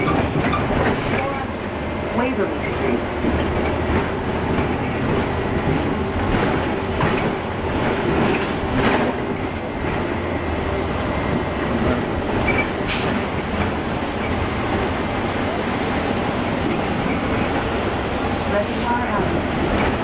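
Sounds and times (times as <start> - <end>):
rattles and clacks: 0.0 - 1.5, 2.6 - 10.2, 11.3 - 14.4, 16.6 - 17.7, 19.5 - 20.0
bus engine and road noise: 0.0 - 20.0.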